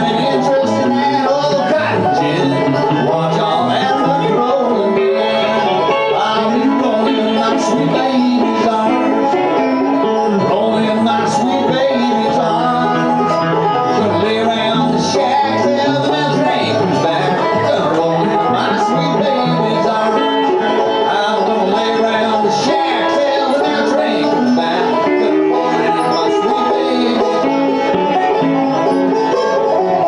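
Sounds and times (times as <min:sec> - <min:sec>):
banjo picking: 0:00.0 - 0:30.0
electric guitar: 0:00.0 - 0:30.0.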